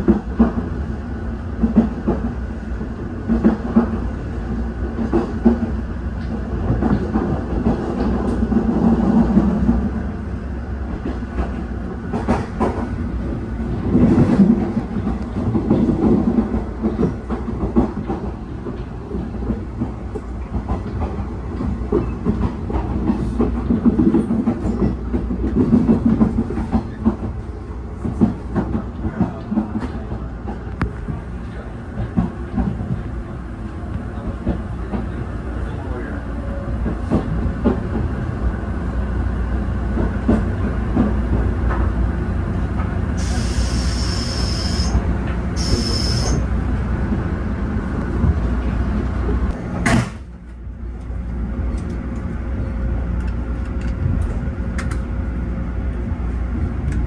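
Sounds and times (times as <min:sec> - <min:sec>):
low train rumble: 0:00.0 - 0:57.0
train wheels clacking over rail joints: 0:10.9 - 0:13.0, 0:13.8 - 0:27.4.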